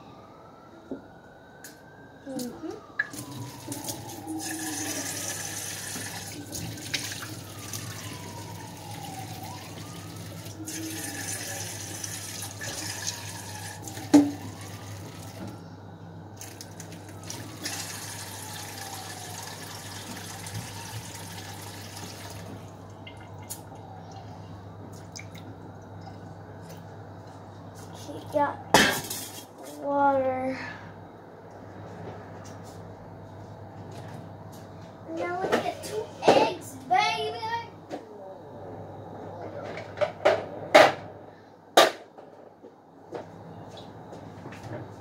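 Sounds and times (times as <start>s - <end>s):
tap water running into pot: 3.1s - 15.4s, 16.4s - 23.2s.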